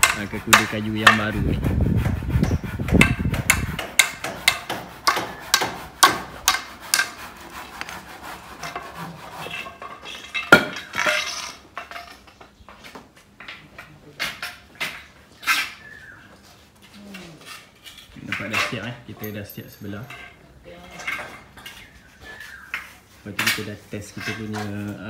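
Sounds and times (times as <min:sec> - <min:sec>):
carpentry knocks and metallic clinks: 0:00.0 - 0:01.4, 0:02.4 - 0:07.2, 0:08.6 - 0:16.0, 0:16.8 - 0:25.0.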